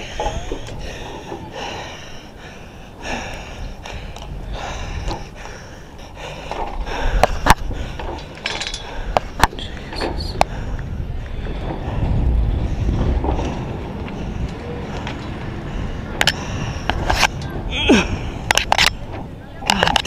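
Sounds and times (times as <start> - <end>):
man breathing hard and gasping: 0.0 - 9.4, 15.5 - 18.5
metal hardware clicks and knocks: 6.5 - 10.4.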